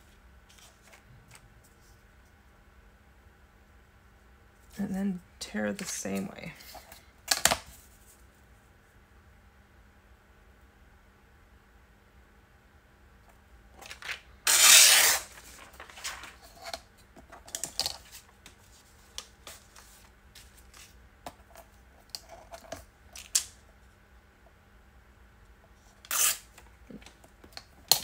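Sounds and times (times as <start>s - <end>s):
paper rustling: 0.5s - 2.0s, 13.8s - 16.8s
paper tearing: 13.8s - 16.8s, 26.0s - 26.6s.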